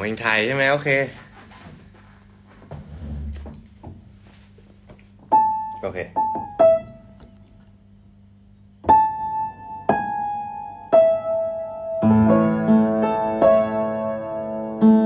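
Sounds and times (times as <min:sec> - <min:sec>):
piano chords: 0:05.3 - 0:07.5, 0:08.8 - 0:15.0
slow piano melody: 0:05.3 - 0:07.5, 0:08.8 - 0:15.0.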